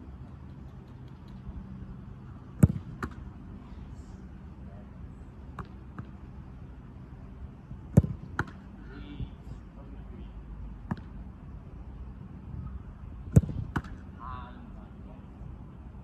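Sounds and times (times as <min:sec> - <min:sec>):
steady low hum: 0:00.0 - 0:16.0
ball thud into gloves: 0:02.6 - 0:03.2, 0:13.4 - 0:14.0
football kicked hard: 0:02.6 - 0:03.2, 0:07.9 - 0:08.6, 0:13.3 - 0:14.0.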